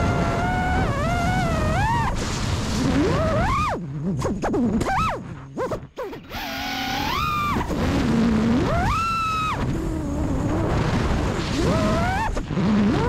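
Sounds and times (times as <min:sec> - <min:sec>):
drone motors whining: 0:00.0 - 0:03.8, 0:05.9 - 0:13.0
rush of air noise: 0:00.0 - 0:04.5.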